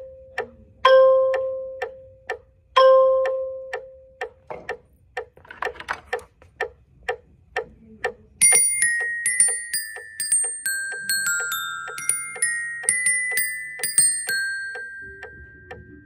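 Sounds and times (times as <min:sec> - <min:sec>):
metronome clicking: 0:00.0 - 0:05.4, 0:06.1 - 0:16.0
glockenspiel notes: 0:08.4 - 0:16.0.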